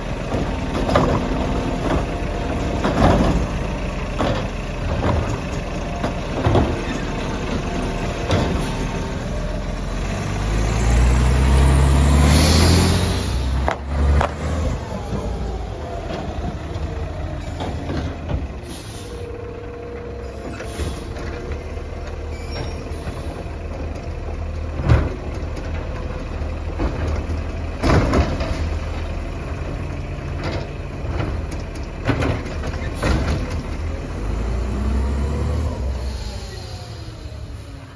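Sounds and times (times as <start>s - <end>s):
garbage truck engine: 0.0s - 37.9s
engine revving: 6.5s - 18.4s, 34.0s - 37.1s.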